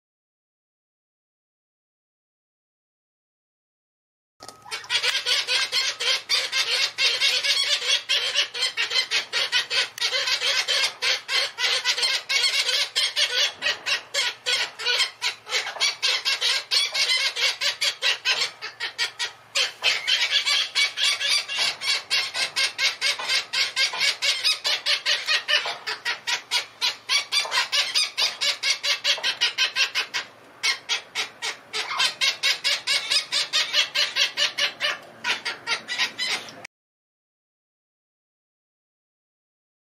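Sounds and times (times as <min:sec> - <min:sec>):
young parrot begging calls: 0:04.6 - 0:36.6.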